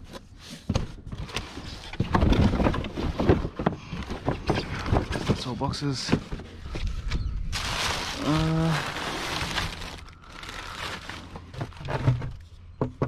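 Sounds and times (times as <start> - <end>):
cardboard and wood scraping: 0.0 - 12.6.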